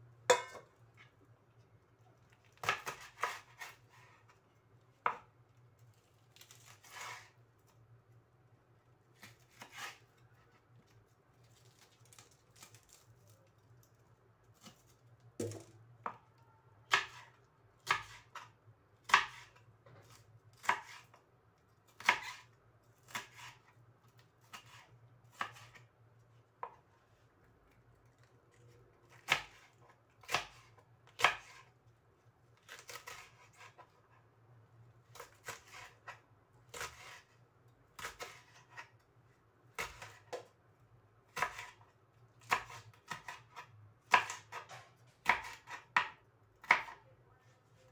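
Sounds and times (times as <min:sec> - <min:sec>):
knife chopping on plastic board: 0:02.6 - 0:03.8, 0:16.9 - 0:21.2, 0:22.0 - 0:22.5, 0:23.1 - 0:23.7, 0:24.5 - 0:25.9, 0:26.6 - 0:26.9, 0:29.1 - 0:31.7, 0:39.7 - 0:40.5, 0:41.3 - 0:47.0.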